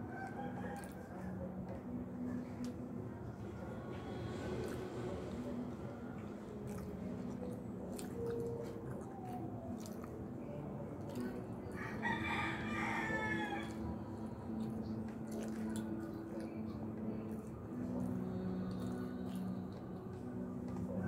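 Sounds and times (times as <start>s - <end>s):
rooster crowing: 11.8s - 13.8s.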